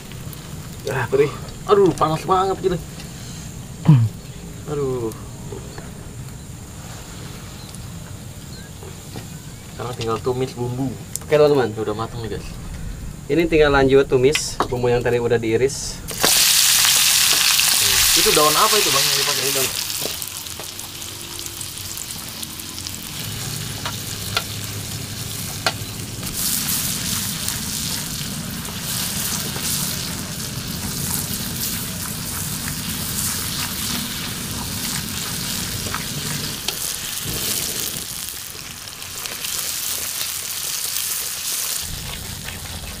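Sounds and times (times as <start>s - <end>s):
food sizzling in hot oil: 0.0s - 3.8s, 16.1s - 43.0s.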